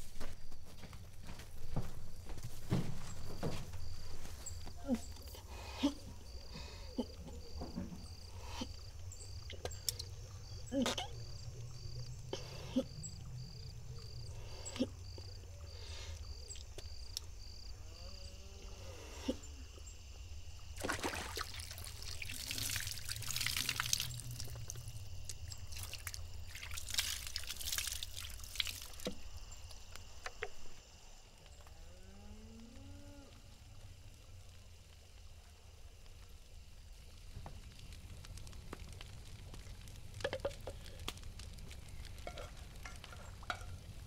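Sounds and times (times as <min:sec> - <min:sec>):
water poured splashing: 0:20.8 - 0:29.2.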